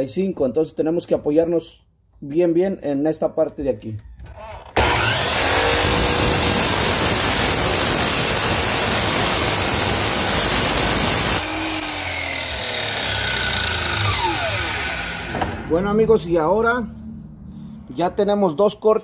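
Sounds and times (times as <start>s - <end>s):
miter saw cutting wood: 4.7s - 15.9s
saw blade winding down: 4.8s - 15.8s.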